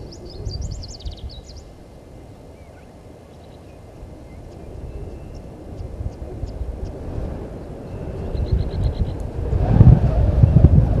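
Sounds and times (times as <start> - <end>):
faint bird calls: 0.0 - 6.6
small birds chirping: 0.0 - 7.0
wind on microphone: 0.0 - 11.0.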